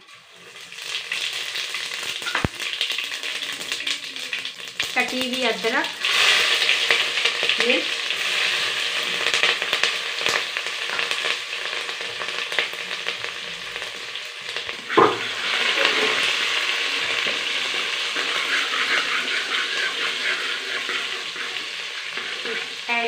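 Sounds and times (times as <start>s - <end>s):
food sizzling in hot oil: 0.0s - 23.0s
loud knock: 15.0s - 15.2s
spoon scraping metal pot: 17.2s - 22.8s.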